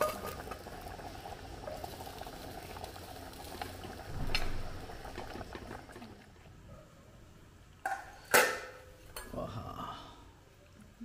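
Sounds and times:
liquid bubbling in a pot: 0.0 - 6.6.

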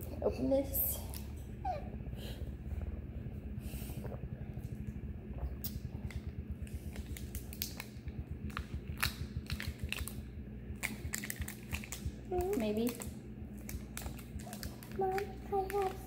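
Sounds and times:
steady low hum: 0.0 - 16.0
plastic bottle crackling: 10.8 - 16.0.

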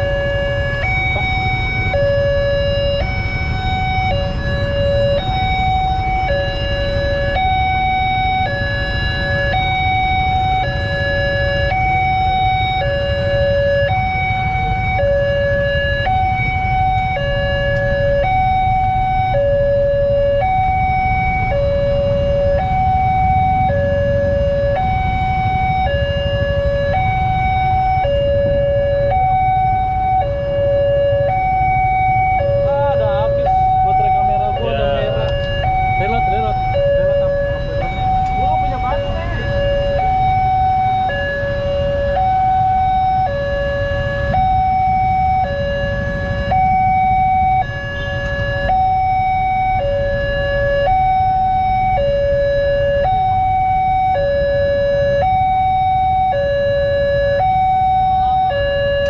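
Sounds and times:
level crossing alarm two-tone: 0.0 - 59.0
low rumble of idling traffic: 0.0 - 59.0.

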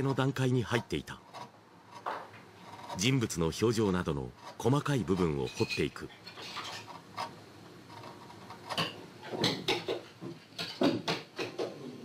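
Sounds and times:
chisel scraping through wood: 0.0 - 3.5, 4.3 - 8.9.

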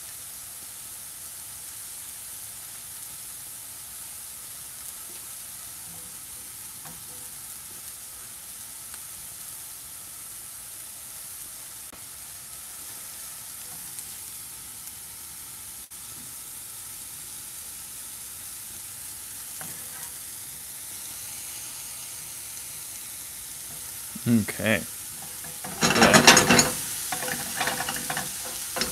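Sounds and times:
mushrooms sizzling in a pan: 0.0 - 28.9
clicks and scrapes in pan: 25.2 - 28.9.

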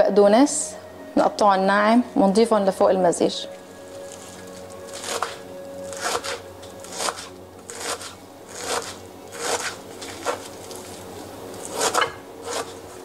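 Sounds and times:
knife chopping on wooden board: 5.0 - 10.9, 11.6 - 12.9.

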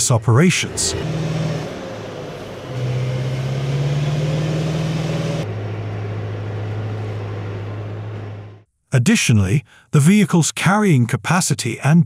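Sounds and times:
diesel engine droning: 0.0 - 8.7.

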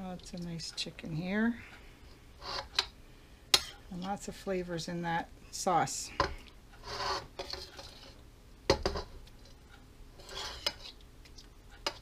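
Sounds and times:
metal spoon scraping in skillet: 2.4 - 2.9, 3.5 - 4.3, 6.2 - 8.2, 8.8 - 11.0, 11.8 - 12.0.

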